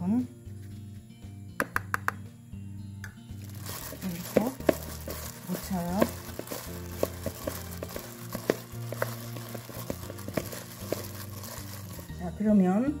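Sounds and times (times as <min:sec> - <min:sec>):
background music: 0:00.0 - 0:13.0
gloved hand squishing food: 0:03.4 - 0:12.2.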